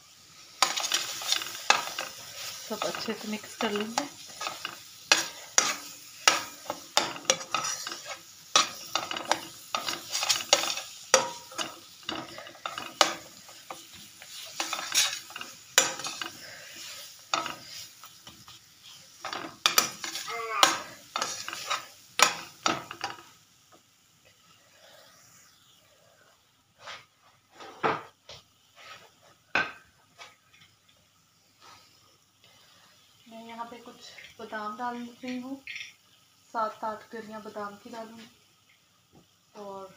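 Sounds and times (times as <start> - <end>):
light sizzle: 0.0 - 39.9
metal spatula scraping frying pan: 0.6 - 23.2.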